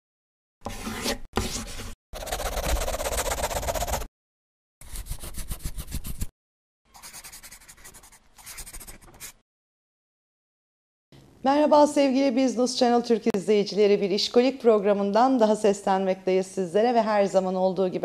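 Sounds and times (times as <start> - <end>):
pen scribbling: 0.6 - 4.1, 4.8 - 6.3, 6.9 - 9.4.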